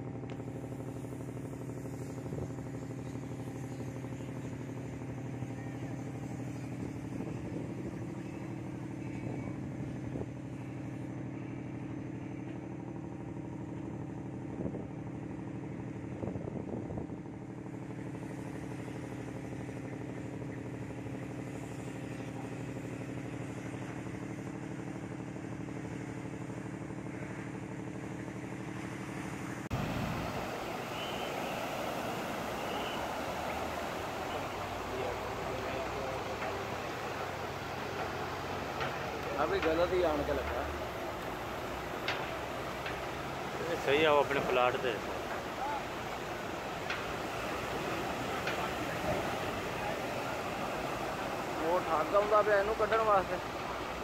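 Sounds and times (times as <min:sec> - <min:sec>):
engine running steadily: 0:00.0 - 0:54.0
waves breaking in surf: 0:24.9 - 0:54.0.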